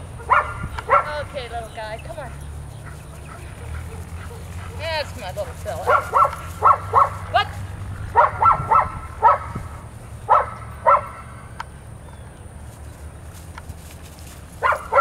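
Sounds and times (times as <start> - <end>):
dog barking excitedly: 0.1 - 1.3, 2.2 - 11.4, 14.6 - 15.0.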